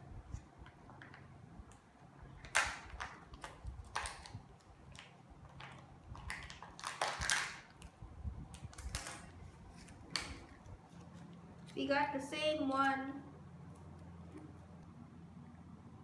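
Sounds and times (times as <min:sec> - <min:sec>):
plastic wrapper crinkling: 0:02.4 - 0:11.8.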